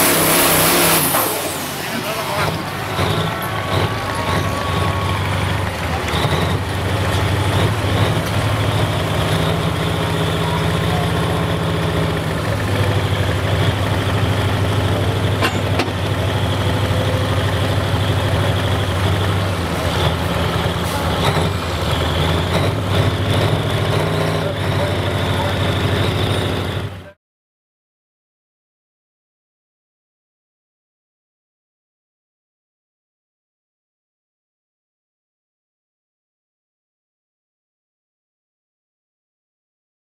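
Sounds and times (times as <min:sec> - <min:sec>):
diesel truck engine idling: 0:00.0 - 0:27.2.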